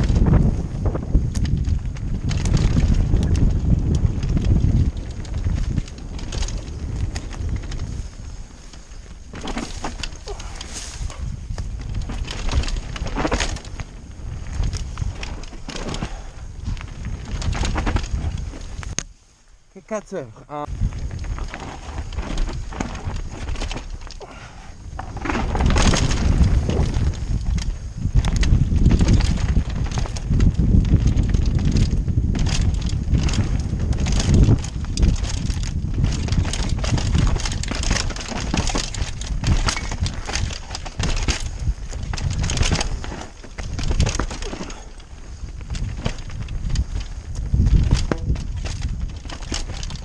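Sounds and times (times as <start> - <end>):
wind rumble on microphone: 0.0 - 19.8, 20.5 - 50.0
bike frame and chain rattling: 0.0 - 50.0
tyres on dirt: 0.0 - 50.0.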